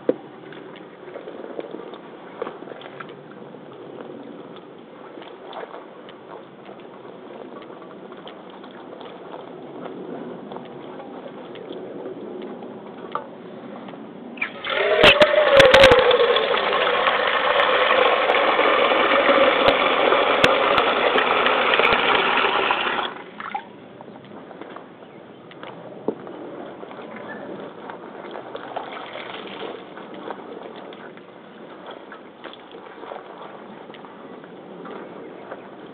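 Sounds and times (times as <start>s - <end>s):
tap water gushing on rubber waders: 14.4s - 23.7s, 28.5s - 30.2s.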